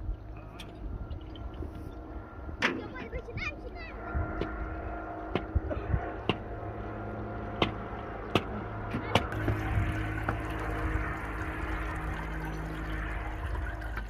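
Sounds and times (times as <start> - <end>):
water trickling and dripping: 0.0 - 14.0
water pouring from a kettle: 9.3 - 14.0.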